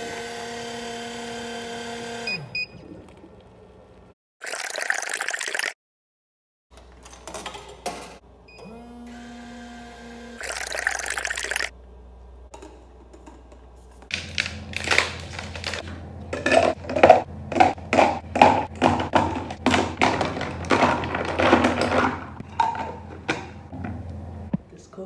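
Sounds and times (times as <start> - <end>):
coffee pouring into plastic cup: 10.4 - 11.7
ice cubes clinking in cup: 10.4 - 11.7, 14.1 - 23.1.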